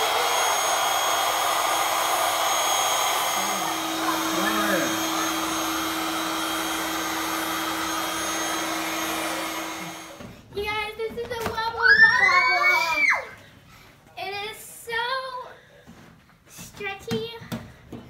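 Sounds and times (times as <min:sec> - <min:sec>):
electric air blower whirring: 0:00.0 - 0:10.4.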